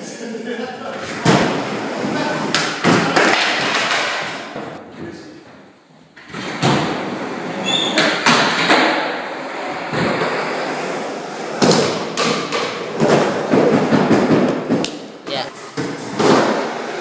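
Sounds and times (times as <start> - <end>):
skateboard wheels rolling on concrete: 0.9 - 4.8, 6.2 - 17.0
skateboard clacking on ground: 2.5 - 4.8.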